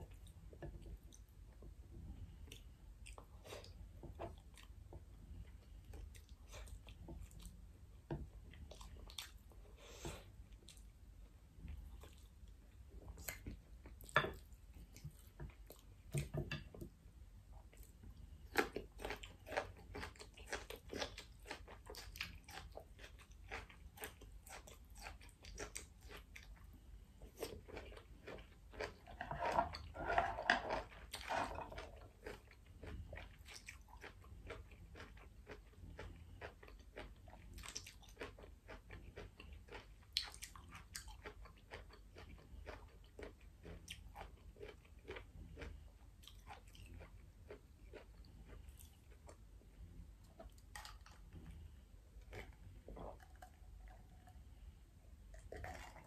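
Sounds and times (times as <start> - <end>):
chewing with wet mouth clicks: 2.2 - 7.6, 8.4 - 9.6, 17.6 - 29.9, 30.8 - 54.6, 55.3 - 56.0.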